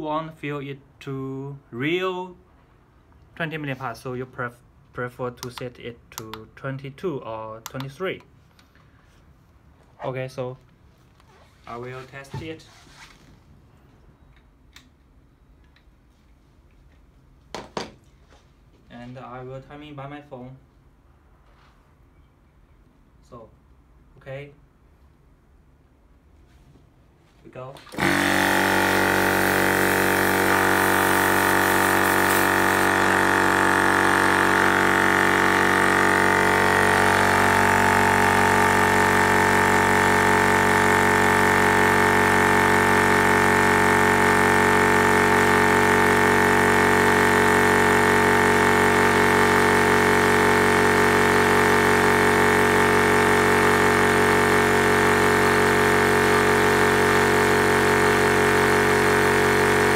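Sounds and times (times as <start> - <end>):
air compressor running: 27.8 - 59.9.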